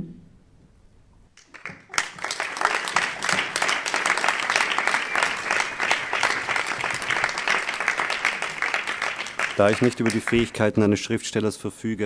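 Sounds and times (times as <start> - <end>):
audience applauding: 1.4 - 10.7.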